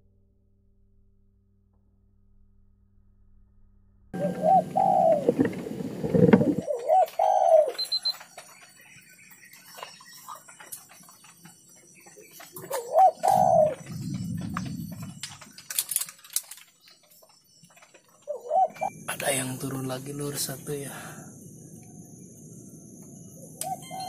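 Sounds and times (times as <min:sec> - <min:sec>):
low rumbling noise: 0:00.0 - 0:06.8, 0:13.2 - 0:16.4
dove cooing: 0:04.2 - 0:08.1, 0:12.1 - 0:15.8, 0:18.1 - 0:19.4, 0:23.4 - 0:24.0.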